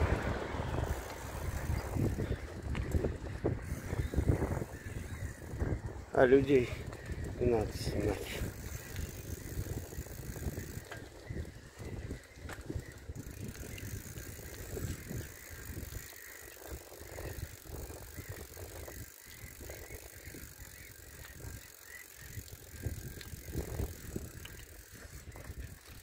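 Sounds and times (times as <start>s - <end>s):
bicycle rumble: 0.0s - 26.0s
bike clicks and rattles: 0.0s - 26.0s.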